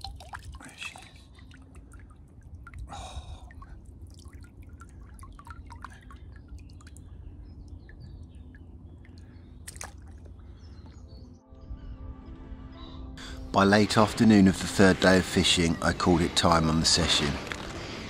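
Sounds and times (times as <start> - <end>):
water splashes: 0.0 - 7.2, 9.1 - 10.3
water dripping and trickling: 0.0 - 10.6.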